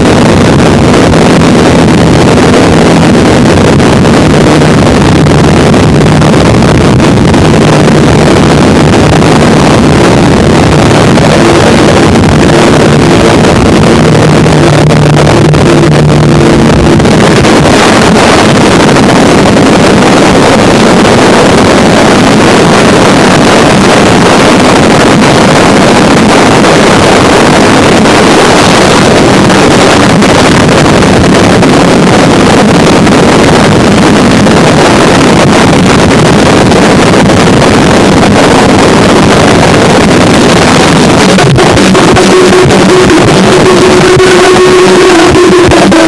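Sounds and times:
steady low tone: 0:00.0 - 0:25.4
harsh distorted noise music: 0:00.0 - 0:46.0.

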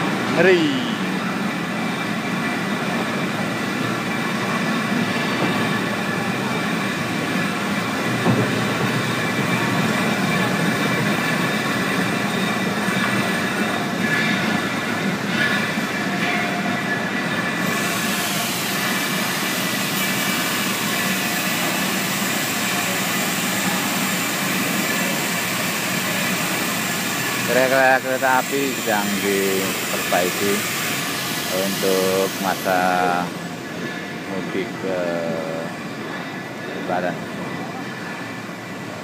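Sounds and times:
workshop machinery din: 0:00.0 - 0:37.8.

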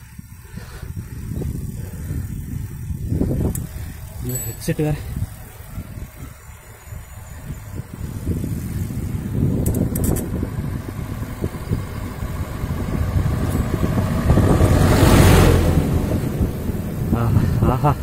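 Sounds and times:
small van passing by: 0:10.2 - 0:18.0.

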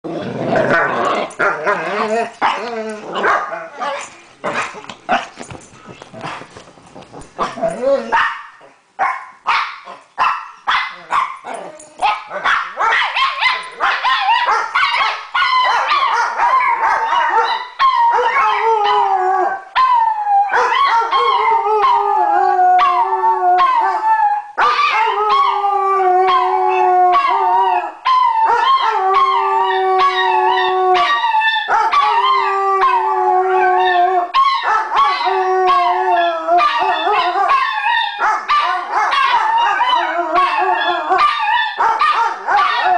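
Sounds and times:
dogs barking and yipping: 0:00.7 - 0:19.1, 0:19.8 - 0:22.1, 0:28.1 - 0:33.0, 0:34.3 - 0:42.9
dogs howling: 0:12.8 - 0:42.9.

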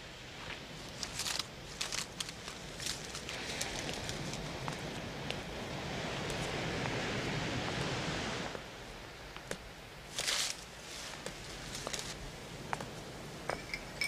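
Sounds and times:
ocean surf rushing: 0:02.9 - 0:14.0.

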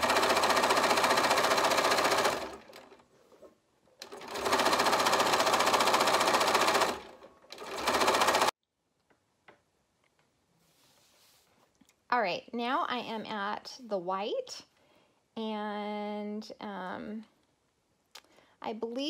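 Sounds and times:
sewing machine stitching: 0:00.0 - 0:03.0, 0:04.0 - 0:08.5.

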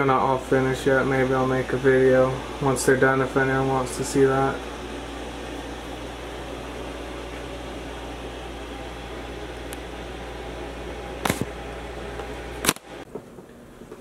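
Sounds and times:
room hum and hiss: 0:00.0 - 0:14.0.

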